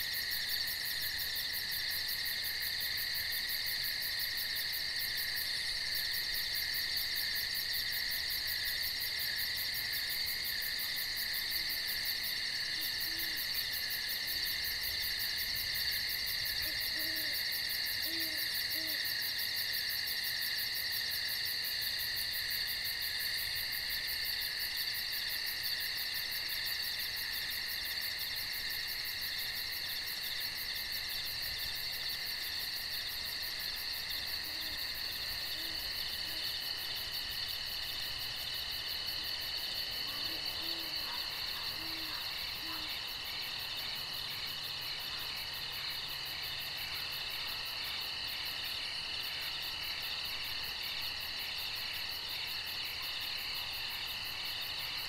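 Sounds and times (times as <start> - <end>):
insects trilling: 0.0 - 55.0
faint owl hooting: 16.6 - 17.4, 18.0 - 19.0.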